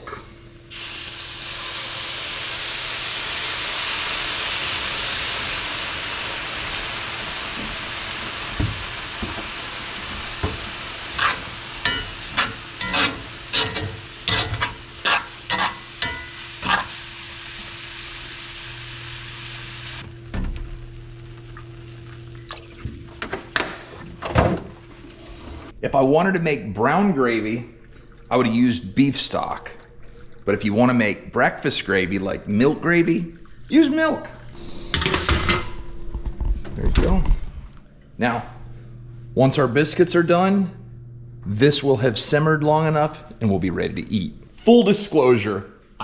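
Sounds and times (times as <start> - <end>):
milk sizzling in hot skillet: 0.7 - 22.5.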